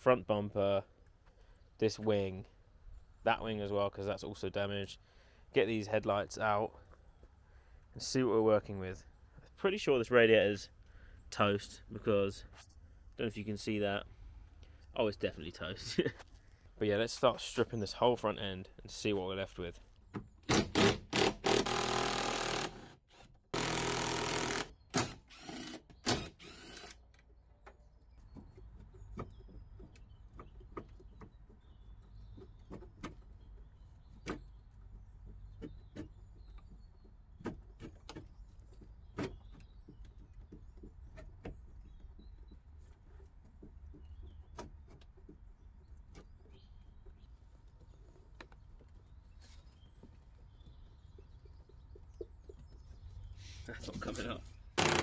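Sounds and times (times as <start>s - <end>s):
cordless power driver running: 54.8s - 55.0s.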